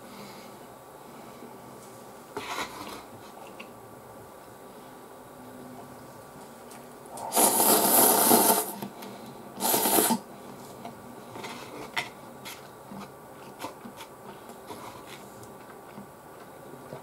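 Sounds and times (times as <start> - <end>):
person slurping noodles: 7.1 - 8.8, 9.6 - 10.2
quiet chewing: 10.8 - 17.0.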